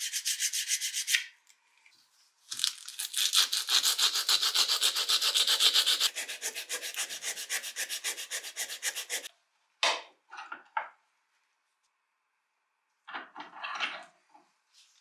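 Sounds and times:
sandpaper rasping on metal: 0.0s - 1.2s, 3.4s - 9.3s.

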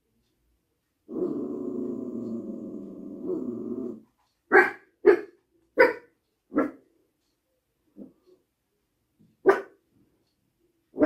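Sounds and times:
small dog growling: 1.1s - 4.1s
dog barking: 4.5s - 6.8s, 9.4s - 9.8s.

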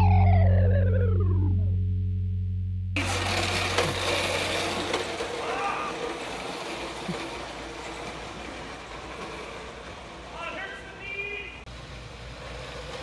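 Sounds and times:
electric go-kart motor and chain: 3.0s - 11.0s.

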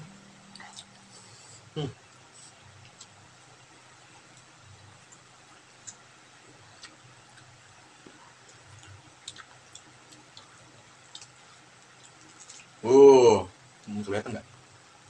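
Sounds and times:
people eating with hands: 0.4s - 13.2s.

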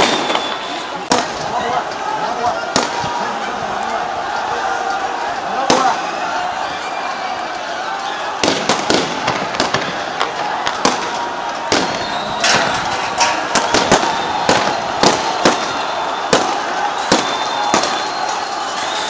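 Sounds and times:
crowd din: 0.0s - 19.0s
gunshots: 8.4s - 18.2s.

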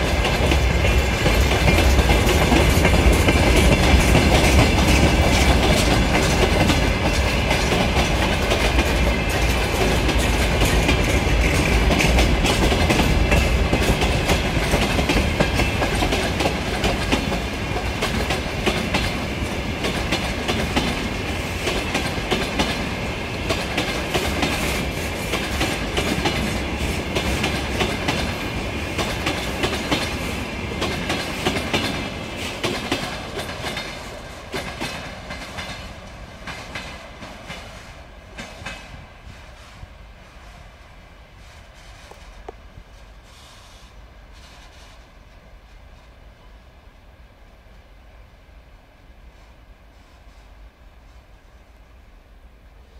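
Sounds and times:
train wheels clattering over rails: 0.0s - 40.7s.

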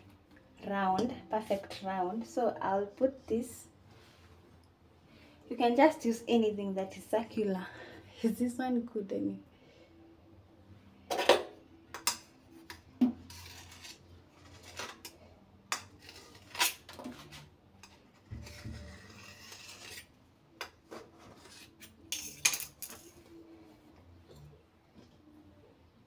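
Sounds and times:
metal scraping on countertop: 13.2s - 20.2s, 20.8s - 23.2s
metal bowl and utensils clinking: 21.7s - 23.2s.

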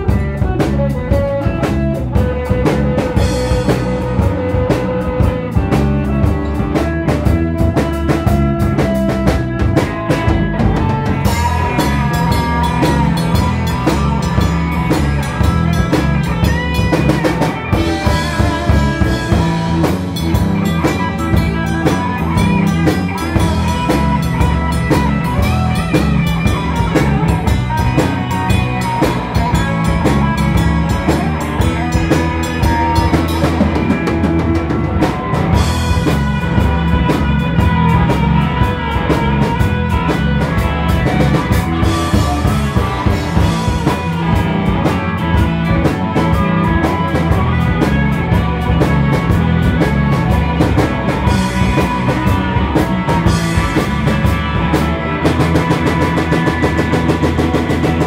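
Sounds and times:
bass guitar: 0.0s - 58.0s
drum kit beat: 0.0s - 58.0s
electric guitar: 0.0s - 58.0s
harmonica bending notes: 0.0s - 58.0s.

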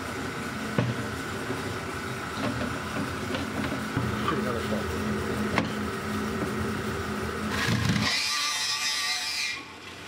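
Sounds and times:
bandsaw cutting plastic: 7.5s - 9.8s.

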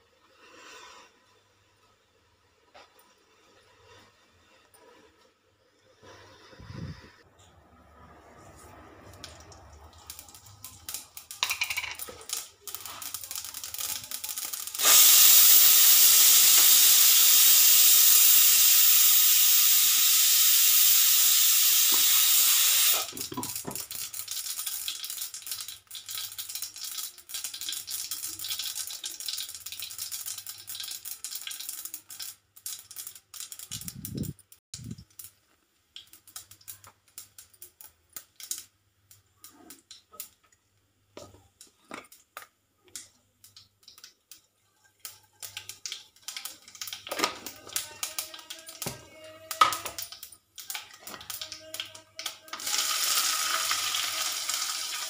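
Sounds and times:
spices frying in hot oil: 10.0s - 35.4s, 41.2s - 55.0s
loud even hiss: 14.8s - 23.1s
small pops and crackles: 23.3s - 40.6s, 41.2s - 52.6s.

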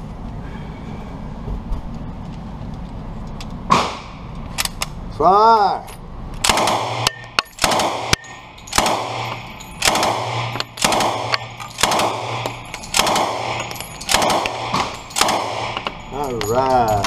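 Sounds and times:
submachine gun shots echoing: 6.4s - 16.1s.

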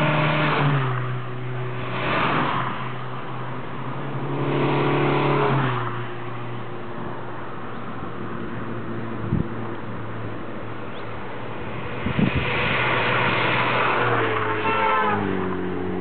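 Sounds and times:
car driving past at speed: 11.6s - 16.0s.

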